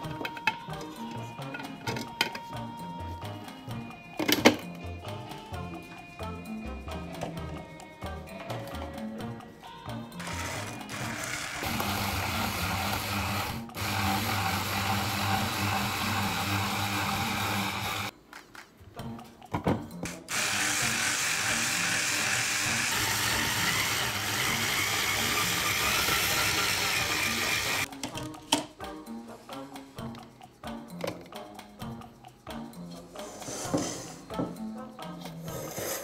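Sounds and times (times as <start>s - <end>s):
hand blender motor whirring: 10.2s - 18.1s, 20.3s - 27.9s.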